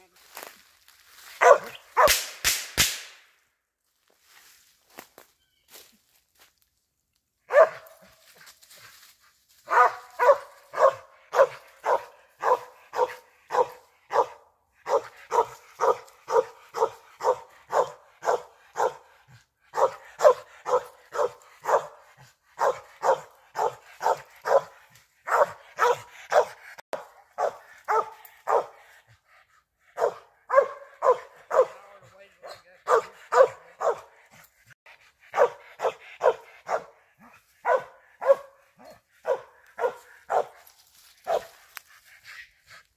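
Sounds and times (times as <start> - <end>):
dog barking: 1.4 - 2.2, 7.5 - 8.1, 9.7 - 29.0, 29.9 - 34.4, 35.3 - 40.6, 41.2 - 41.6.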